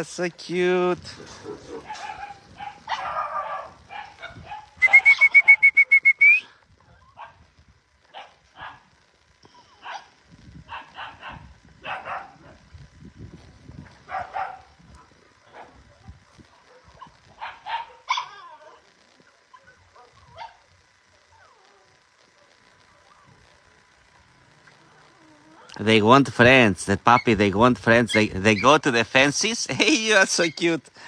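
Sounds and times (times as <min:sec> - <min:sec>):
puppy yapping: 0:01.4 - 0:05.7, 0:10.7 - 0:12.6, 0:14.1 - 0:18.8
puppies yipping and whimpering: 0:16.5 - 0:21.8, 0:28.1 - 0:28.8.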